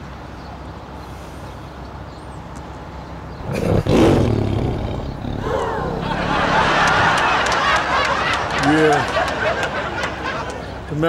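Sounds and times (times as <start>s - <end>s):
low steady background noise: 0.0s - 11.0s
tiger roaring: 3.4s - 7.5s.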